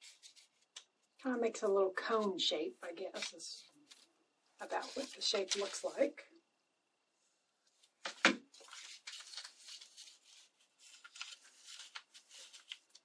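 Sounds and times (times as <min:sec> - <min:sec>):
paper rustling and crinkling: 0:00.0 - 0:01.0, 0:03.1 - 0:06.1, 0:07.8 - 0:13.0.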